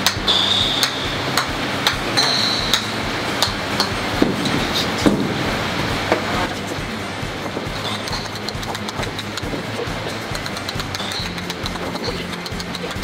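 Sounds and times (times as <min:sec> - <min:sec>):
golf ball clicking on club face: 0:08.1 - 0:09.6, 0:10.3 - 0:13.0.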